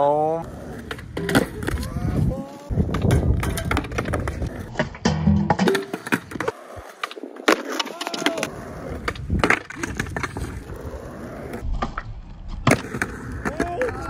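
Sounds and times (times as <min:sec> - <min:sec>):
skateboard wheels rolling: 0:00.3 - 0:14.0
skateboard clacking on concrete: 0:00.7 - 0:10.7.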